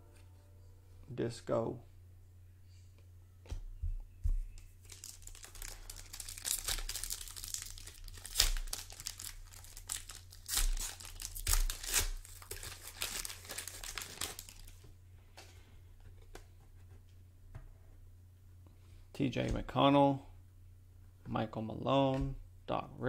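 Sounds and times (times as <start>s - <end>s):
plastic wrapper tearing and crinkling: 4.8s - 14.8s.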